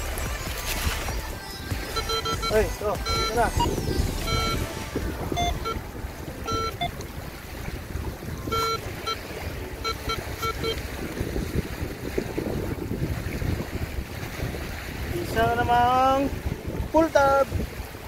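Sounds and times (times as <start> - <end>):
wind on microphone: 0.0 - 18.0
metal detector beeps: 1.9 - 4.7, 5.3 - 7.0, 8.4 - 10.8.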